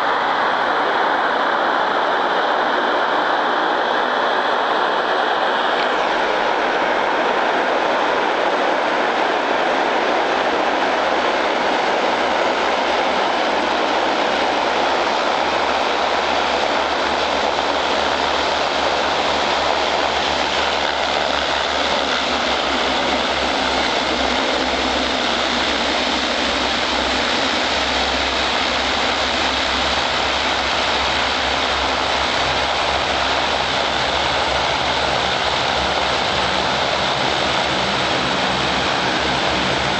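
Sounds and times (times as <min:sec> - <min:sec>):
turboprop engines droning: 0:00.0 - 0:39.9.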